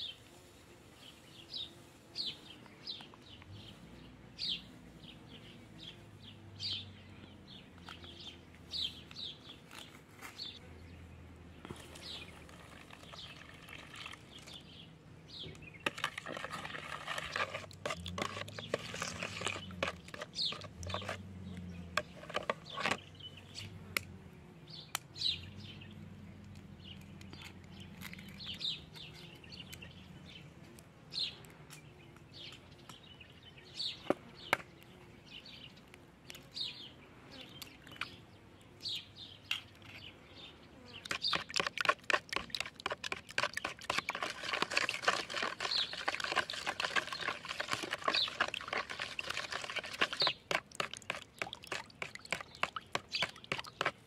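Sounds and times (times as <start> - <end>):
small birds chirping: 0.0 - 54.0
spoon beating batter in bowl: 15.8 - 21.2, 22.0 - 23.0, 41.1 - 54.0.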